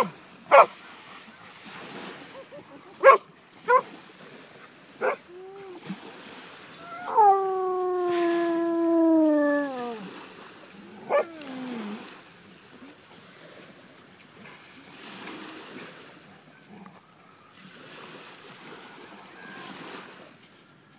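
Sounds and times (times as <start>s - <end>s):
dog barking: 0.0s - 0.7s, 3.0s - 3.9s, 11.1s - 11.3s
dog howling: 6.8s - 10.1s, 11.0s - 12.0s.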